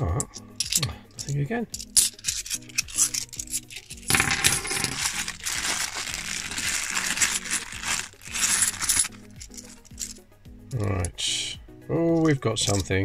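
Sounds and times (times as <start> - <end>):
coins jingling: 0.2 - 10.9, 12.1 - 13.0
plastic bag crinkling: 2.1 - 10.0.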